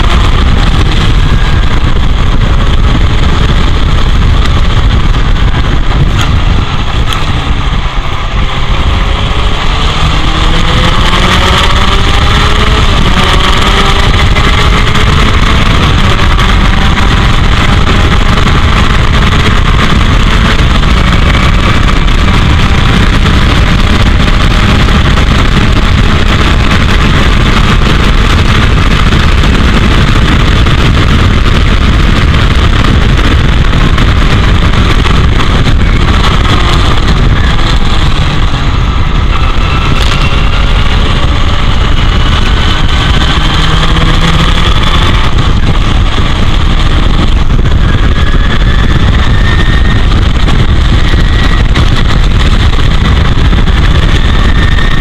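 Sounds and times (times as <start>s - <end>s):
racing car engine at speed: 0.0s - 55.0s
wind buffeting microphone: 0.0s - 55.0s.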